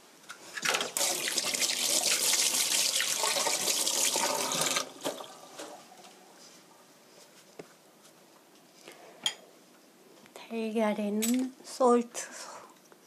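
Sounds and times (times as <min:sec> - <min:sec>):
water running from a tap: 0:00.7 - 0:05.4.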